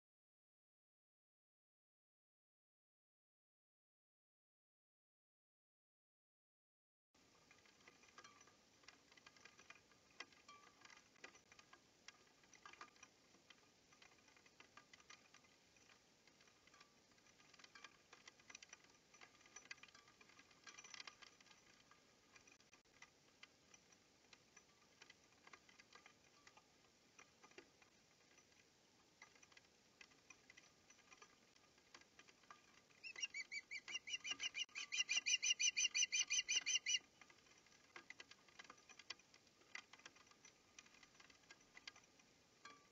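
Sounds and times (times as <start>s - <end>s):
faint clicks: 7.4s - 42.9s
osprey chirping calls: 33.0s - 37.1s.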